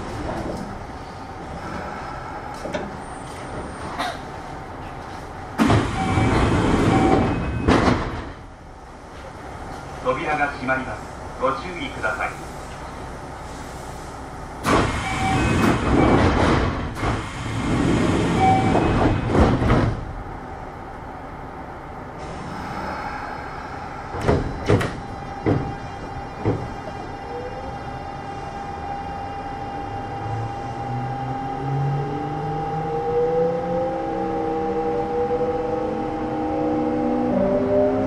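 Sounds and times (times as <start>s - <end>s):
train door and air noise: 0.0s - 10.2s, 10.8s - 30.9s
sharp knocks: 24.2s - 25.8s.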